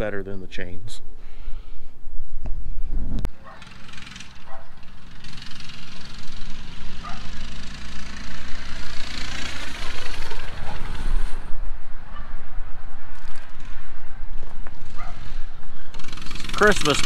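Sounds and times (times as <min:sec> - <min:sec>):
small engine running: 0:03.3 - 0:11.5, 0:14.4 - 0:17.0.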